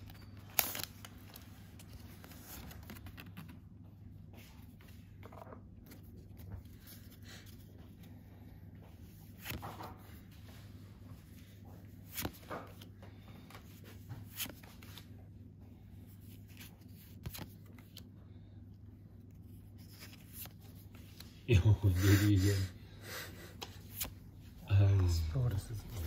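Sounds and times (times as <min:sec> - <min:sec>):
trading cards swishing and flicking: 0:11.2 - 0:12.9, 0:13.6 - 0:15.1, 0:16.2 - 0:18.0.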